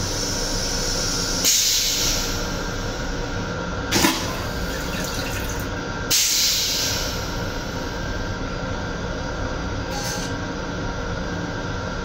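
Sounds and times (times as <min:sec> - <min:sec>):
train running hum: 0:00.0 - 0:12.0
toilet rinse water running: 0:04.0 - 0:05.8.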